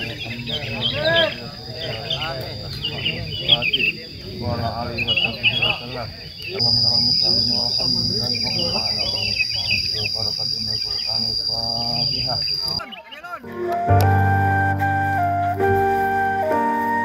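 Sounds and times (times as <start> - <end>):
bird chirps: 0.0 - 13.4
murmur of voices: 0.0 - 17.0
high-pitched insect buzz: 6.6 - 12.8
flute music: 13.2 - 17.0.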